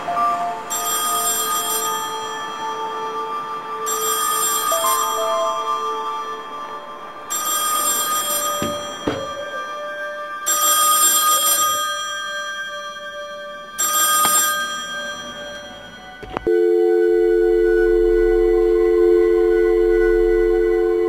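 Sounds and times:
payphone ringing: 0.7 - 2.8, 3.9 - 5.8, 7.3 - 9.6, 13.8 - 17.6
sharp knocks: 8.6 - 9.4.

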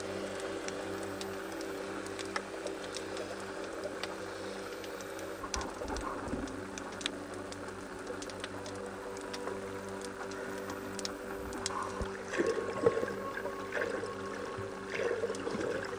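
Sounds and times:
underwater low hum: 0.0 - 15.9
sharp clicks and crackles: 0.3 - 12.5.

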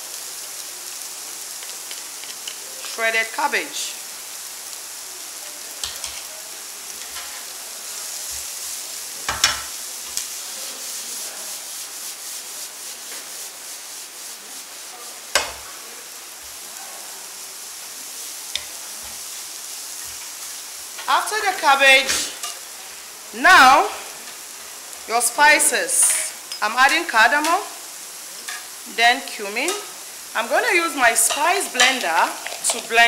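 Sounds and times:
vegetables sizzling in a pan: 0.0 - 33.0
stirring and scraping in pan: 1.6 - 3.0, 5.8 - 6.3, 6.9 - 16.6, 22.0 - 23.0, 26.0 - 28.8, 29.5 - 33.0.

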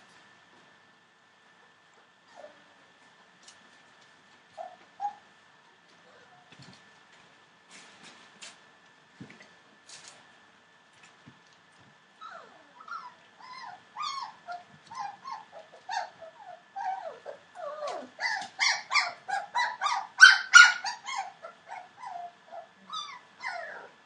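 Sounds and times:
puppies whimpering and yipping: 4.5 - 5.2, 12.2 - 24.0.

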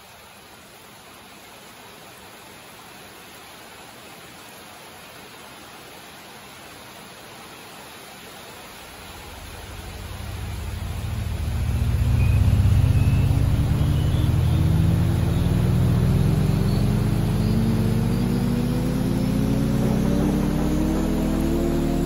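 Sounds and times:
heavy rain running off roof: 0.0 - 22.0
low drone rising in pitch: 9.1 - 22.0.

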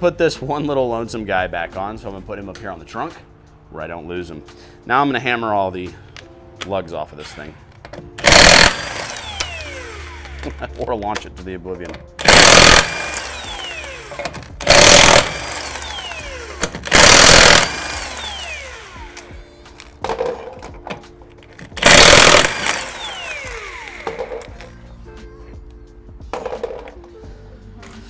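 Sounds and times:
impact wrench hammering: 8.2 - 10.6, 12.2 - 19.3, 21.8 - 24.6
wrench spinning down whine: 8.3 - 10.5, 12.2 - 19.3, 21.8 - 24.5.

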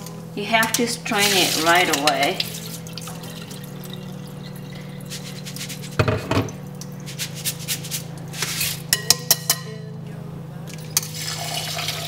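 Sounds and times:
water draining through strainer: 1.1 - 7.0, 11.1 - 12.0.

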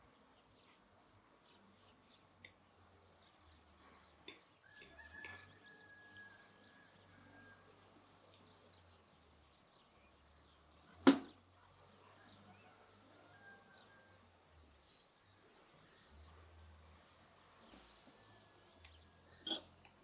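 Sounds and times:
sharp knock: 11.1 - 11.3.

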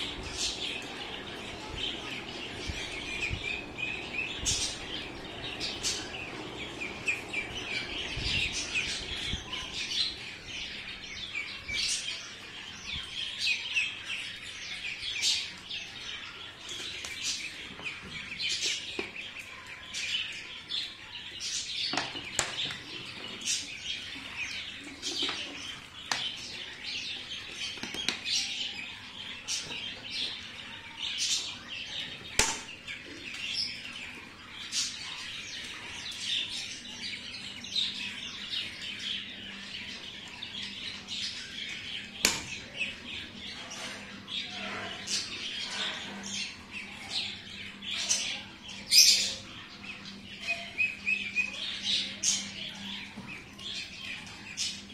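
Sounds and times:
ducklings peeping: 0.0 - 54.9.

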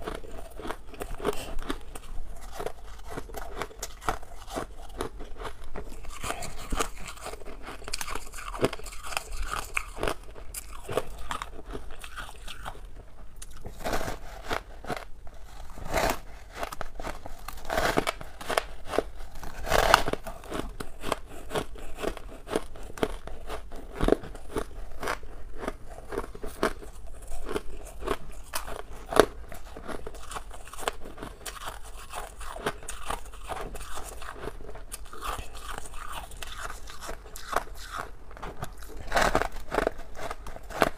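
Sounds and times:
ice being bitten and chewed: 0.0 - 40.9.

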